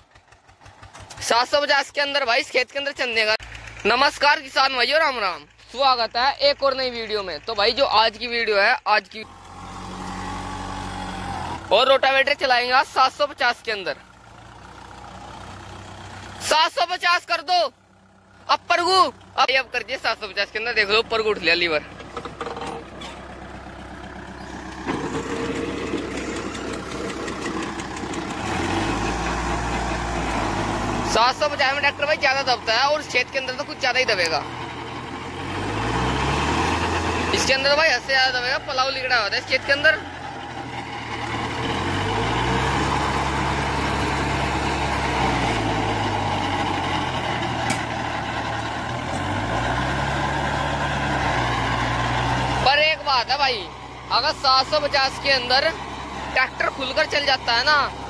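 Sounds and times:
tractor diesel engine under load: 0.0s - 58.0s
rotavator blades churning soil: 24.4s - 32.0s.

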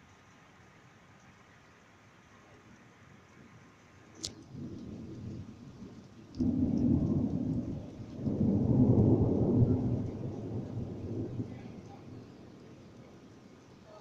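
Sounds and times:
faint hiss: 0.0s - 14.0s
rolling thunder rumble: 4.4s - 13.8s
sharp thunder crack: 6.4s - 12.2s.

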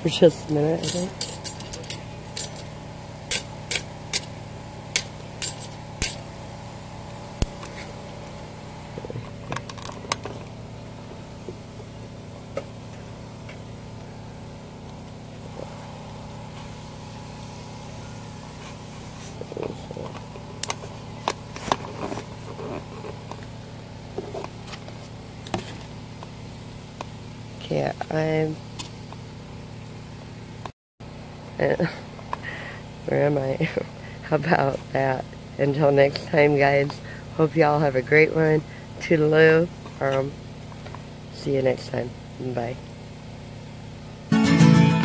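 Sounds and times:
steady engine-like hum: 0.0s - 44.3s
clinks: 0.8s - 2.7s, 5.0s - 6.2s.

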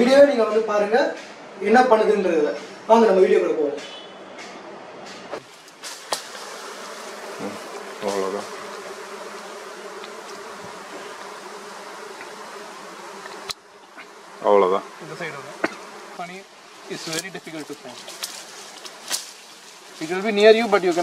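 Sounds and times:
bees buzzing: 5.4s - 21.0s.

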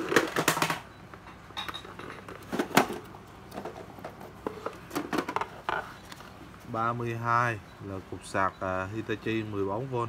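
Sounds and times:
plastic chargers knocking and clattering: 0.0s - 5.9s.

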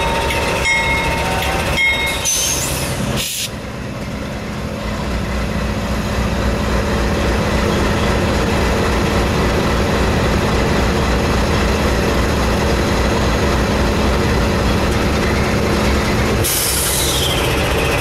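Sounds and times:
diesel locomotives idling: 0.0s - 18.0s
air brake hiss: 2.3s - 3.6s, 16.4s - 17.3s.

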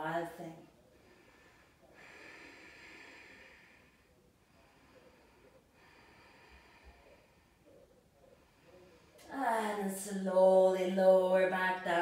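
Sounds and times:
faint breathing: 0.7s - 9.3s.

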